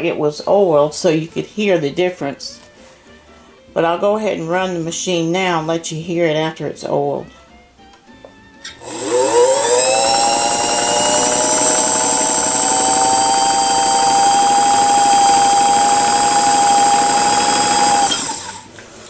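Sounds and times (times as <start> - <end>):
sewing machine motor whine: 8.8 - 18.7.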